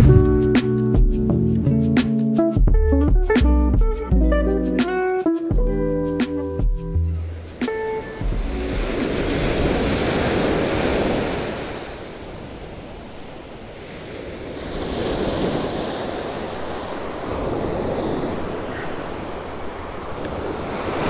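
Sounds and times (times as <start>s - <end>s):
wind buffeting microphone: 0.0s - 1.4s, 7.4s - 21.0s
ocean surf breaking on beach: 7.3s - 21.0s.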